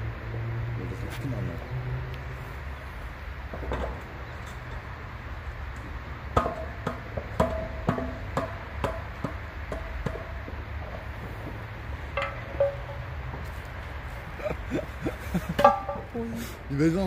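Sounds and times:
metallic knocks on milk churn: 12.2 - 13.0.

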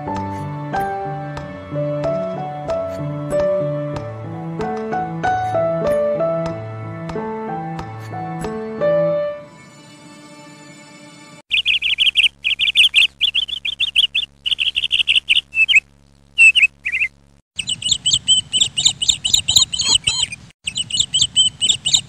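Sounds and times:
small birds chirping: 11.5 - 22.0.

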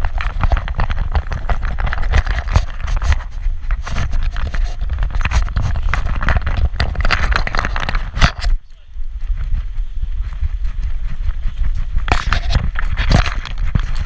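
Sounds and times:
camera thumping: 0.0 - 8.6, 11.6 - 14.0
harness and tags jostling: 0.0 - 14.0.

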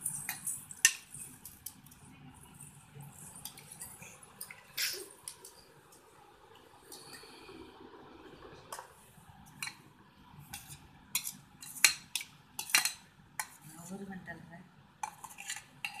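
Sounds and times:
steel cookware clinking and scraping: 0.0 - 1.7, 10.5 - 13.6, 15.0 - 16.0.

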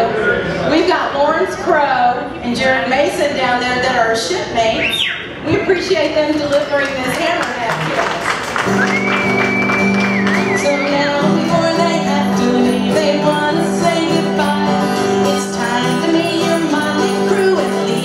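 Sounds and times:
acoustic guitar chords: 8.6 - 18.0
person singing: 10.5 - 18.0.

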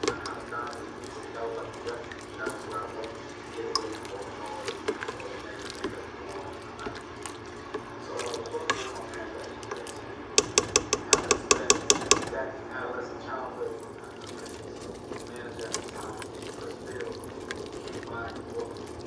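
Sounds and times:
spoon stirring wet mixture: 0.0 - 19.0
spoon clicking against pot: 10.4 - 12.3.

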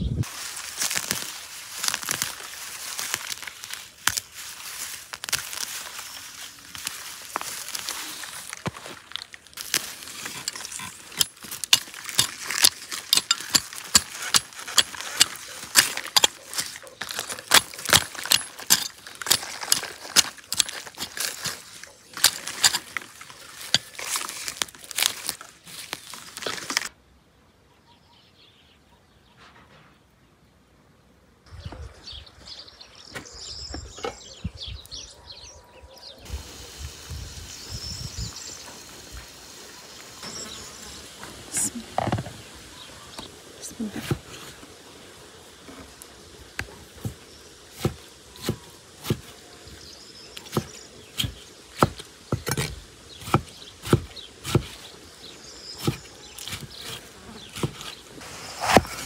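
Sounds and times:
hand hoe chopping into soil: 0.8 - 4.4, 5.0 - 6.0, 6.7 - 26.9, 43.2 - 44.6, 45.7 - 55.0, 55.6 - 59.0.

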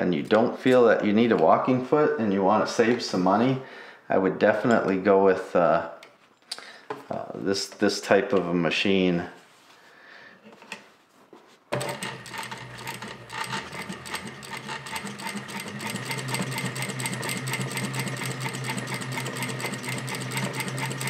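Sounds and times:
sewing machine stitching: 11.7 - 21.0.

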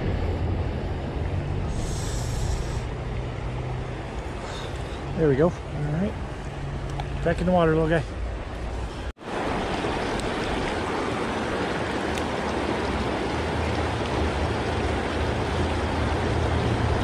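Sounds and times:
low rumble: 0.0 - 4.2
creek rushing over rocks: 0.0 - 17.0.

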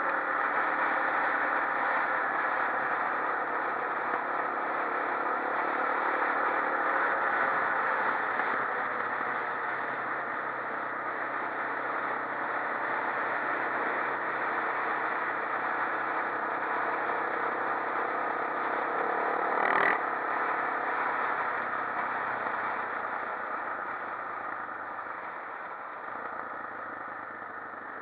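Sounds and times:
quad bike engine running: 0.0 - 28.0
road and wind rush: 0.0 - 28.0.

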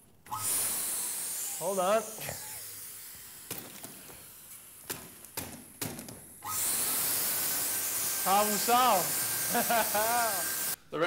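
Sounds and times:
vacuum cleaner motor: 0.3 - 4.8, 6.4 - 10.8.

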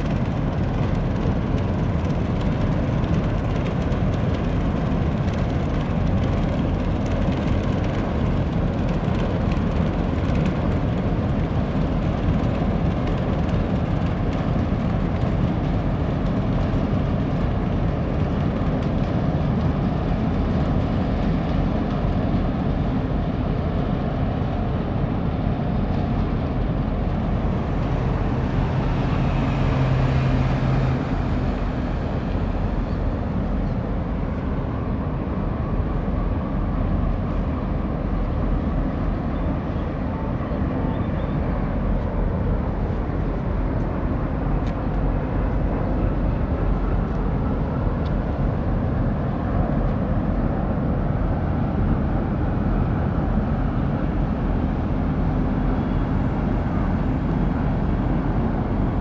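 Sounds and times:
faint engine hum: 0.0 - 59.0
ship low rumble: 0.0 - 59.0.

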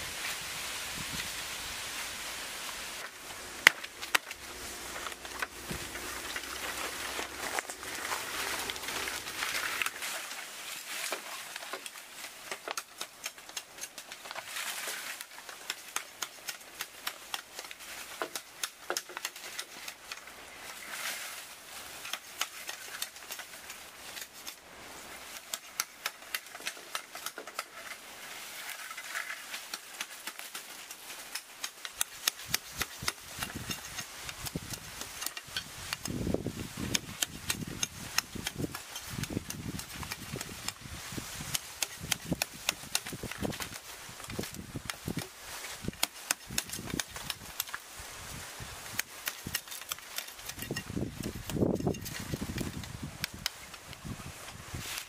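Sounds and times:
bamboo leaves rustling and crackling: 0.0 - 55.0
knife chopping bamboo branches: 3.0 - 20.3, 21.9 - 24.6, 29.4 - 47.8, 48.8 - 53.8.

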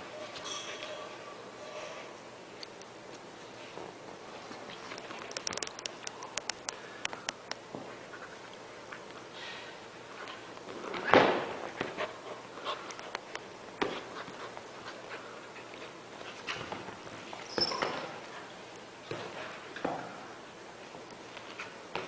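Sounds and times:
high squeak: 17.4 - 18.0.

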